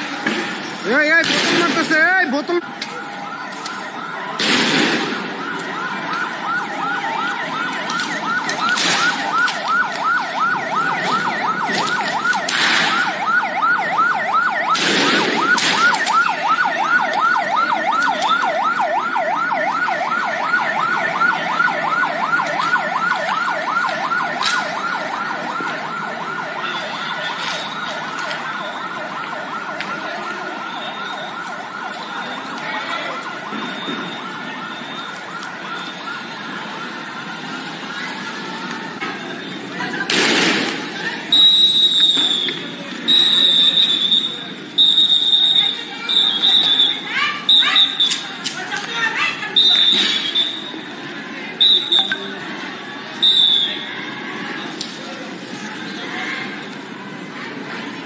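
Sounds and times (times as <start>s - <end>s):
police siren yelping: 0.0s - 57.3s
sharp loud bangs: 1.2s - 1.9s, 4.4s - 5.3s, 14.7s - 15.9s, 40.1s - 40.8s.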